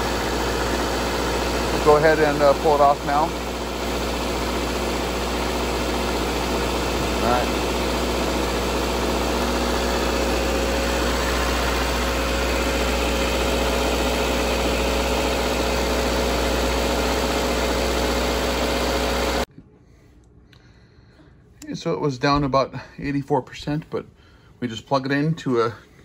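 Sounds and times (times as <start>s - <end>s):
car engine idling with whine: 0.0s - 19.5s.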